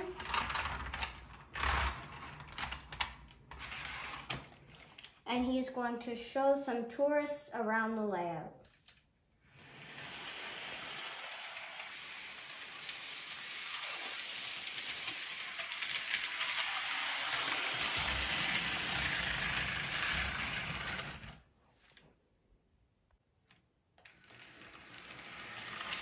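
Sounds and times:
model train motor whirring: 0.0s - 4.3s, 9.5s - 21.4s, 24.0s - 26.0s
wheels clicking over rails: 0.0s - 4.9s, 9.5s - 21.4s, 24.0s - 26.0s.

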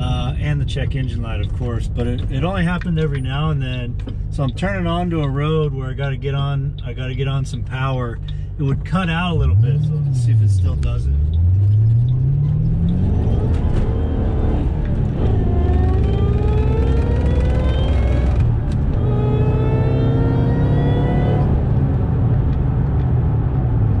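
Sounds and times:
car engine accelerating hard: 8.6s - 24.0s.

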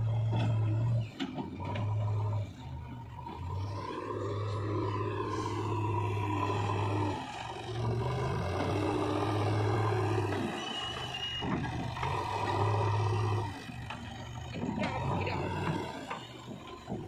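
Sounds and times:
diesel engine under load: 0.0s - 17.0s.

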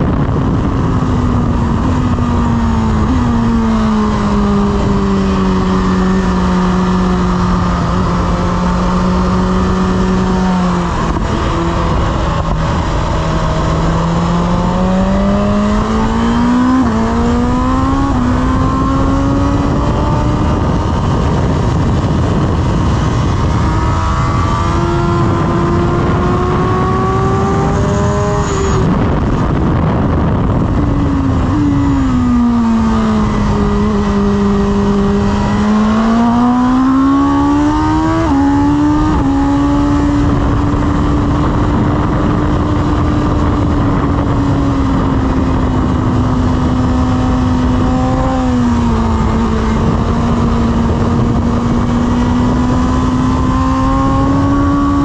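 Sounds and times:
motorcycle engine revving: 0.0s - 55.0s
rushing wind noise: 0.0s - 55.0s.

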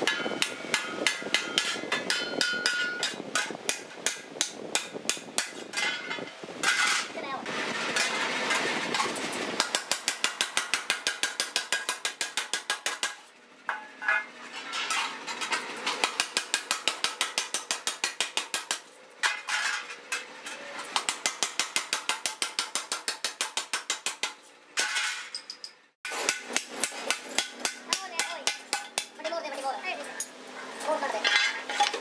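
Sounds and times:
power hammer striking steel: 0.0s - 7.0s, 26.1s - 29.2s.

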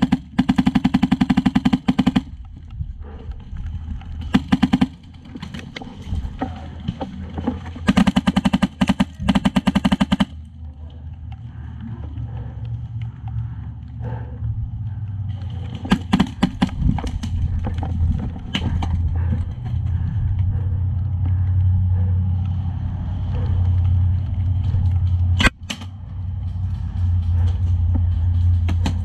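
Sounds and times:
low rumble: 0.0s - 29.0s.

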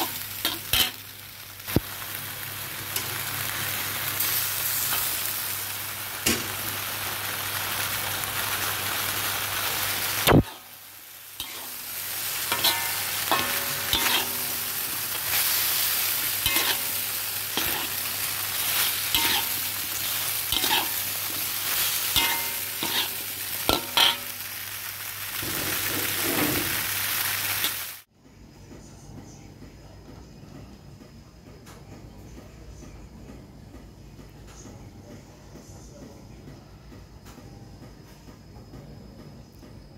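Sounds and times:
metal spatula scraping a pan: 0.0s - 1.0s, 11.4s - 24.4s
food sizzling in a wok: 0.0s - 28.1s.

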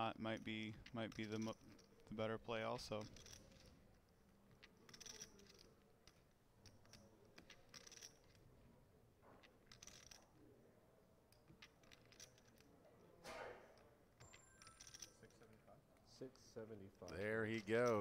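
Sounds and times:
poker chips clicking: 4.4s - 8.4s, 14.2s - 15.2s.

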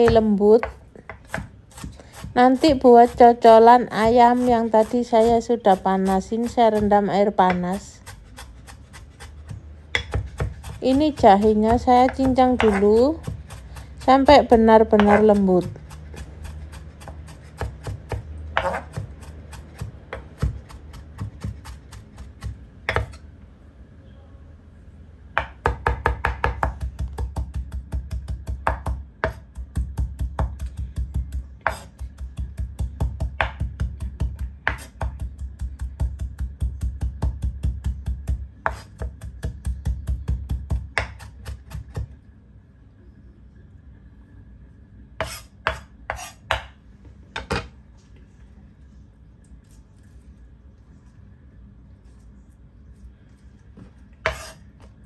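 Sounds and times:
knife chopping on cutting board: 0.0s - 3.2s, 6.0s - 23.2s, 25.4s - 42.1s, 45.2s - 46.8s, 54.2s - 54.6s.

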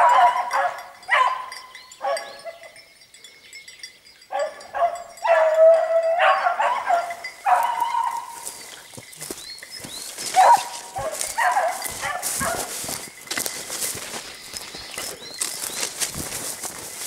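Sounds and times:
beagle baying: 0.0s - 2.8s, 4.3s - 9.4s, 10.0s - 13.0s.

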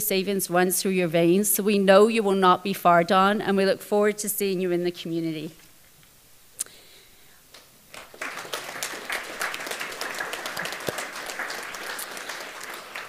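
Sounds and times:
audience applauding: 7.9s - 13.0s.

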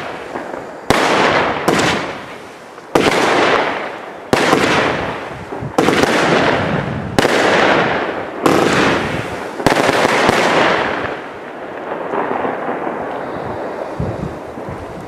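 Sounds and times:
firework bangs: 0.0s - 15.0s
firework hiss: 12.2s - 15.0s.

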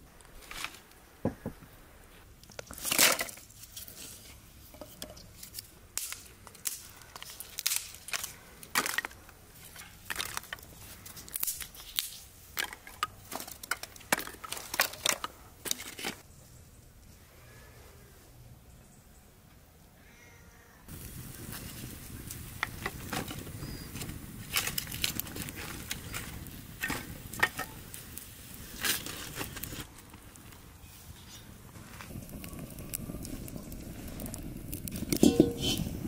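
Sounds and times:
sticks and twigs clattering: 2.4s - 16.2s, 24.0s - 27.8s, 34.2s - 36.0s.

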